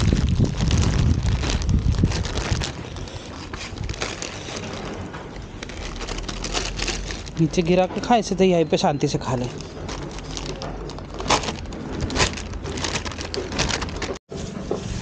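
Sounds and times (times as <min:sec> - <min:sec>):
wind buffeting microphone: 0:00.0 - 0:07.4.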